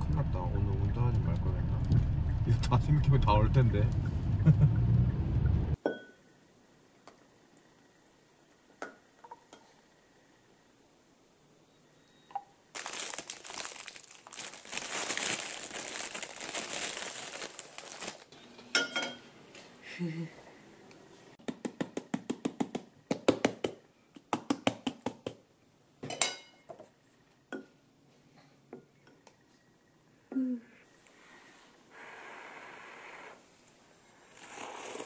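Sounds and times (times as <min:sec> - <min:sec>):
plastic bag crinkling: 0:12.7 - 0:18.3.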